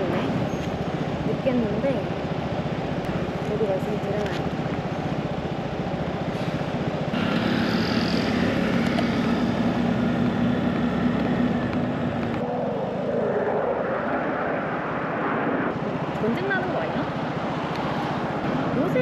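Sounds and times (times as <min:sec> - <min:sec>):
vehicle engine running: 0:00.0 - 0:12.6
wind noise: 0:00.0 - 0:19.0.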